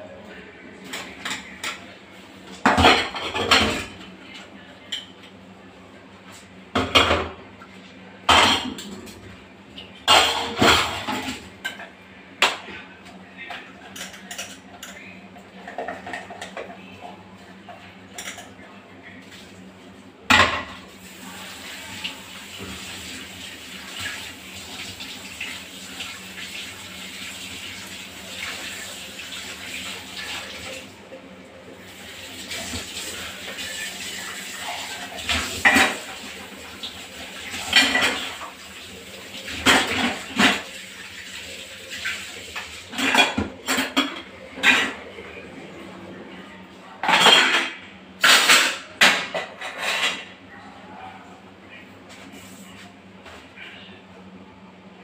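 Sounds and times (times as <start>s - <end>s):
dishes clattering in a steel sink: 0.8s - 1.9s, 2.5s - 5.3s, 6.7s - 18.8s, 20.3s - 31.2s, 31.9s - 45.4s, 46.9s - 50.4s.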